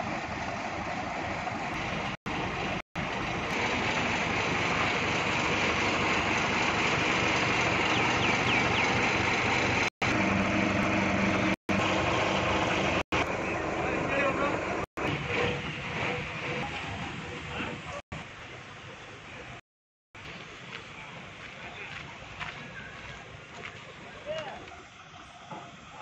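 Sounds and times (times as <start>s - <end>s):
tractor diesel engine idling: 0.0s - 14.8s.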